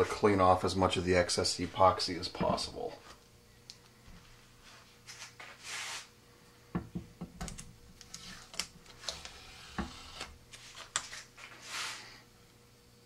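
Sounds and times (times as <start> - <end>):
tape crackling and clicking: 7.4 - 11.3.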